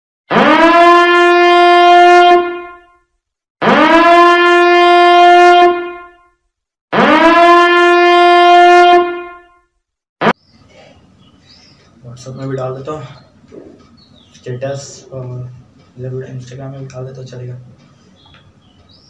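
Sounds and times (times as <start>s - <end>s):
horn blasts: 0.3s - 3.0s, 3.6s - 9.7s.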